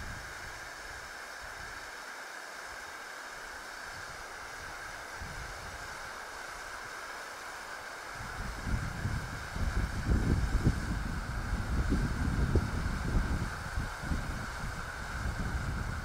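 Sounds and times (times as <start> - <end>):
hand flare burning with a hiss: 0.0 - 16.0.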